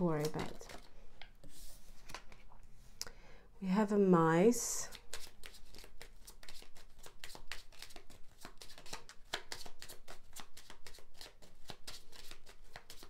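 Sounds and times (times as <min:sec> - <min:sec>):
cards being shuffled: 0:00.0 - 0:02.5, 0:04.9 - 0:13.0.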